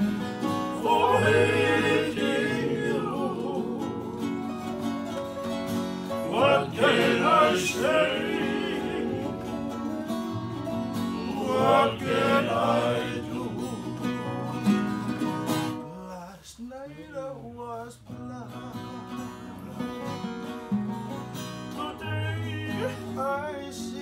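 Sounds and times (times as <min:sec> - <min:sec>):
ukulele: 0:00.0 - 0:16.0, 0:18.1 - 0:24.0
strummed acoustic guitar: 0:00.0 - 0:24.0
voices singing: 0:00.5 - 0:05.1, 0:06.0 - 0:14.8.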